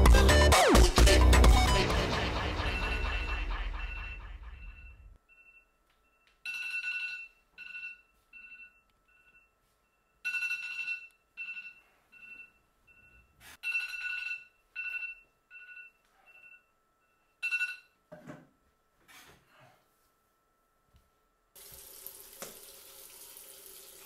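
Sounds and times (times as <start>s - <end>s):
phone alarm beeping: 2.7s - 18.0s.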